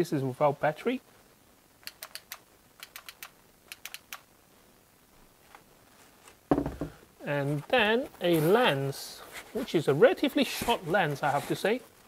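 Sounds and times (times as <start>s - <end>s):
dull knock: 6.5s - 7.0s.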